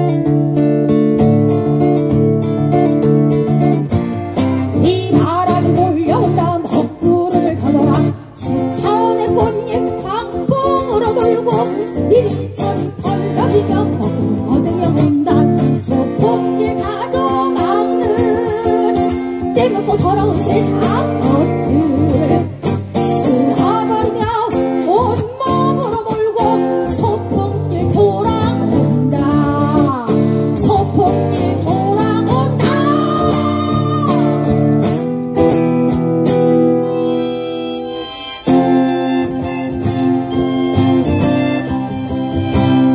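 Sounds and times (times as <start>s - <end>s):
strummed acoustic guitar: 0.0s - 42.9s
person singing slow melody: 26.4s - 34.7s.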